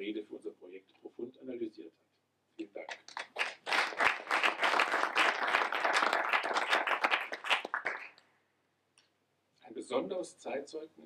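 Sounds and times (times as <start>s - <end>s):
audience applause: 2.9s - 8.2s.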